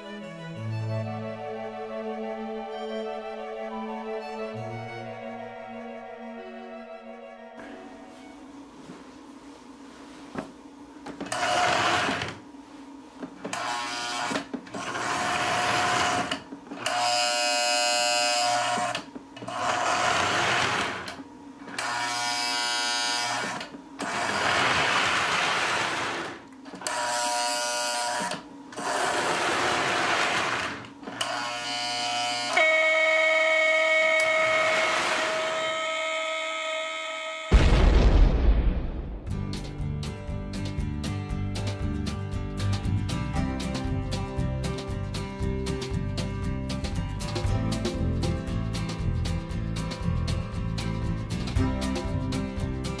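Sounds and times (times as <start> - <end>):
buzzing train horn blasts: 31.7 - 37.6.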